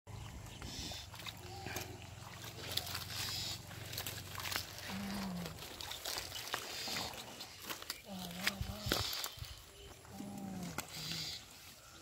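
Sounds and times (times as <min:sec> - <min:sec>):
shallow water splashing: 0:00.1 - 0:11.9
water plants rustling and crackling: 0:00.2 - 0:12.0.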